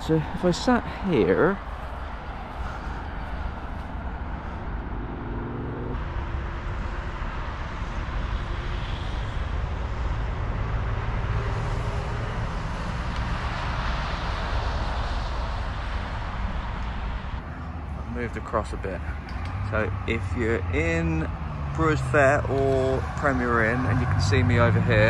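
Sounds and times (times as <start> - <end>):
lorry passing: 0.0 - 6.4, 17.4 - 25.0
car engines and tyre noise: 0.0 - 25.0.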